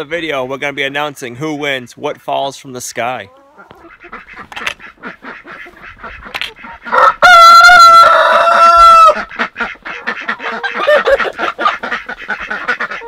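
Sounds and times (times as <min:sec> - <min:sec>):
hens clucking: 0:00.0 - 0:13.0
ducks quacking: 0:01.6 - 0:13.0
rooster crowing: 0:06.9 - 0:09.2.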